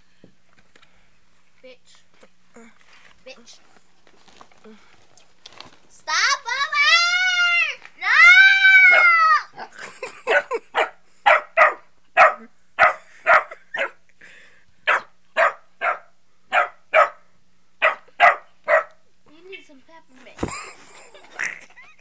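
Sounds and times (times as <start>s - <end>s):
small dog barking: 10.3s - 14.0s, 14.9s - 19.0s.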